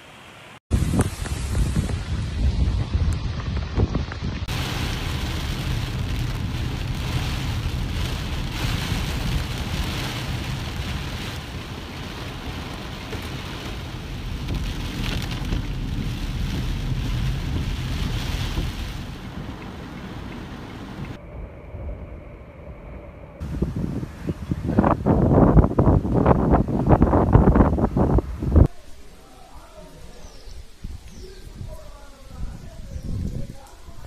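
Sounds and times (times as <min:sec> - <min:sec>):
low rumble: 0:00.7 - 0:28.7
heavy rain on windshield: 0:04.4 - 0:21.2.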